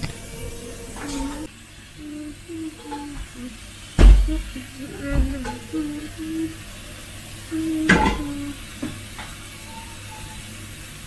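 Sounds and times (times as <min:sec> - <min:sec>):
person humming: 0:01.0 - 0:08.7.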